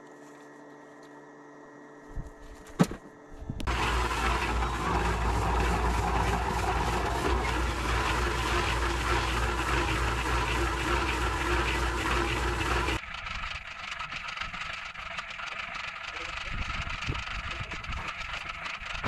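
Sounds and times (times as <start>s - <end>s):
motor humming: 3.4s - 13.0s.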